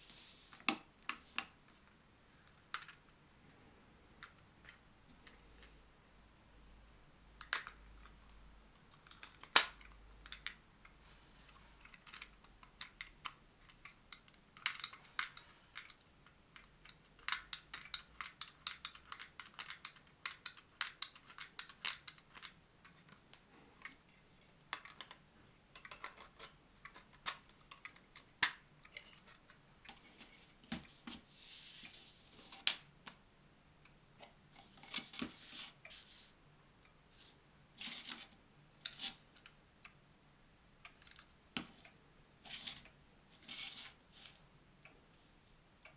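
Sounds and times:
plastic parts clicking and tapping: 0.5s - 3.1s, 4.2s - 5.8s, 7.4s - 31.2s.

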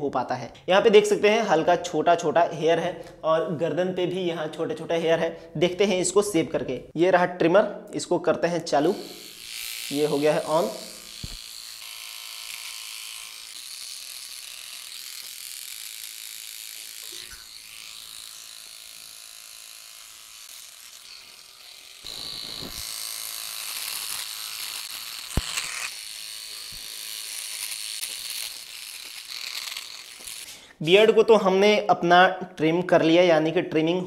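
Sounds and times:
electric trimmer buzzing: 8.8s - 30.7s.

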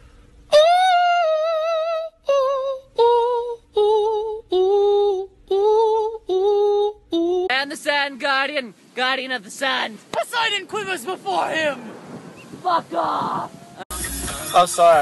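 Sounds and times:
high voice singing with vibrato: 0.5s - 7.5s.

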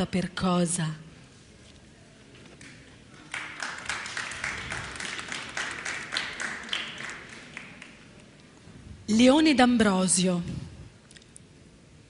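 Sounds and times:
audience applauding: 2.6s - 8.2s.

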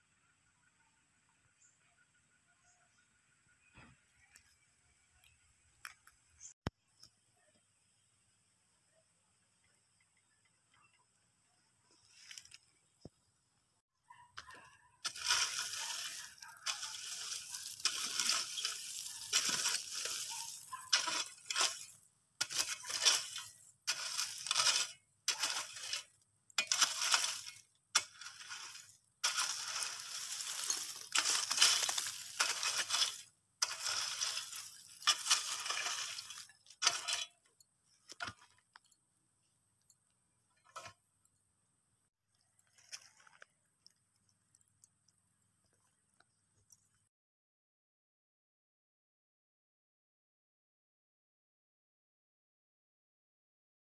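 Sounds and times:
rake scraping through gravelly earth: 11.9s - 12.9s, 14.4s - 38.9s, 40.6s - 41.0s, 42.4s - 44.6s.

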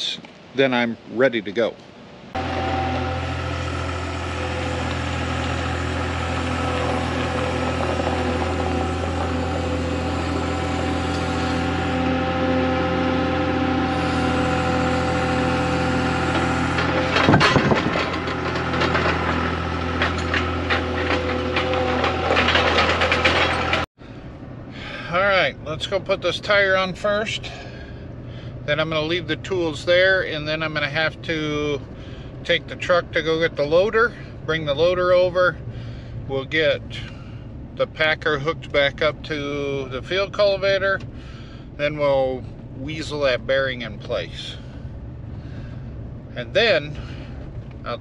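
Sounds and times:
diesel engine running: 2.1s - 48.0s
tire knocking and clattering: 2.4s - 12.1s, 15.5s - 23.9s.

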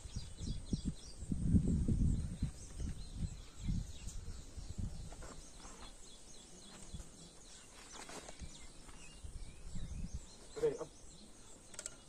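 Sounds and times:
low rumbles on microphone: 0.0s - 5.4s
small birds chirping: 0.0s - 12.0s.

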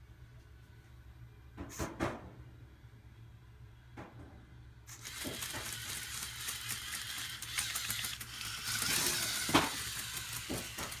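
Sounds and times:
servo motors whirring: 4.9s - 11.0s.

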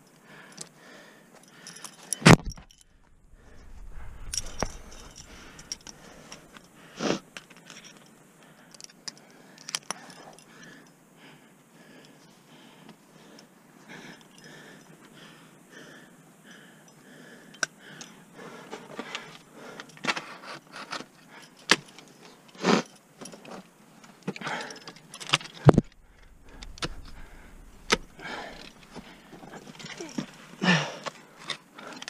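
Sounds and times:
climbing gear jangling: 1.4s - 6.8s, 7.4s - 10.9s, 24.4s - 32.0s.

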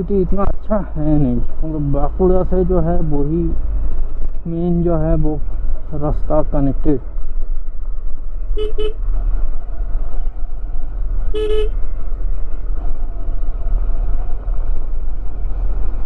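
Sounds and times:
motorcycle engine rumble: 0.0s - 16.0s
motorcycle horn beeping: 8.6s - 9.0s, 11.3s - 11.8s.

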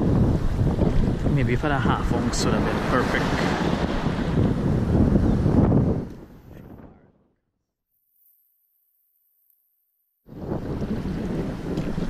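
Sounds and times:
wind buffeting microphone: 0.0s - 7.4s, 10.2s - 12.0s
sea water washing around: 0.3s - 5.5s.

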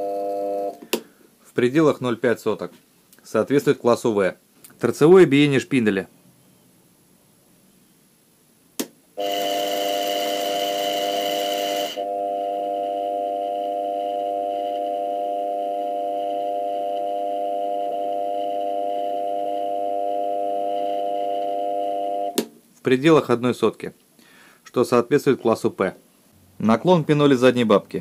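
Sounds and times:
lathe spindle whining: 9.2s - 15.1s.

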